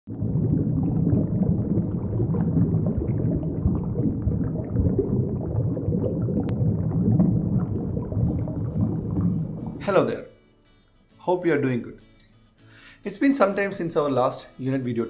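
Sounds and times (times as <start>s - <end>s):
underwater bubbling: 0.1s - 9.8s.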